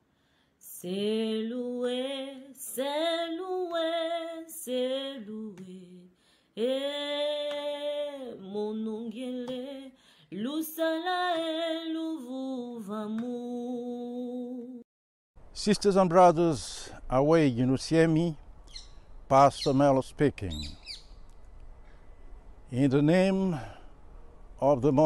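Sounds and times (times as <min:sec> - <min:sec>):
person singing unaccompanied: 0:00.6 - 0:14.8.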